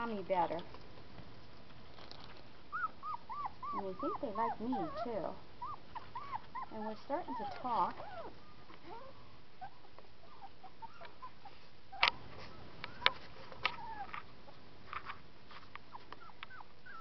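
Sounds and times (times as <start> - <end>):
puppies squeaking and whimpering: 2.7 - 14.3, 15.9 - 17.0.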